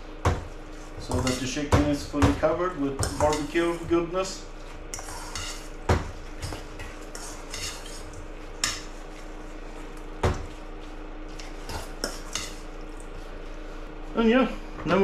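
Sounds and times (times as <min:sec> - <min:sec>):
utensil scraping metal bowl: 0:00.6 - 0:01.6, 0:02.9 - 0:03.9, 0:04.9 - 0:10.0, 0:10.8 - 0:12.7
utensil clinking against bowl: 0:03.0 - 0:03.9.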